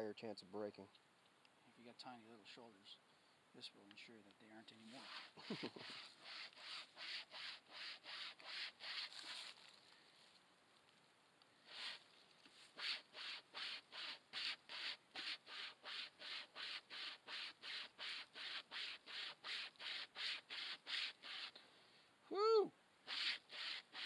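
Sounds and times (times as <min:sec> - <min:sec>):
wire saw rasping through wood: 0:05.0 - 0:09.2, 0:12.8 - 0:21.5, 0:23.1 - 0:24.0.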